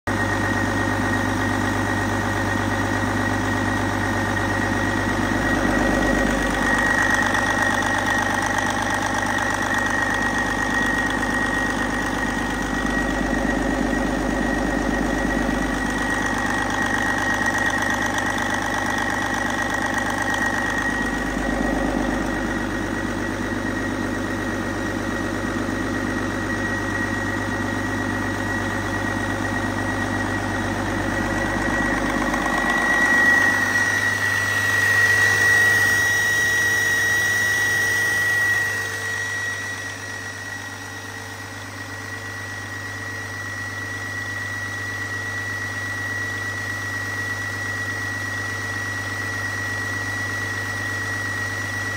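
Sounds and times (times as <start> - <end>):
diesel engine idling: 0.2 - 41.4
thin high whine: 2.3 - 42.9.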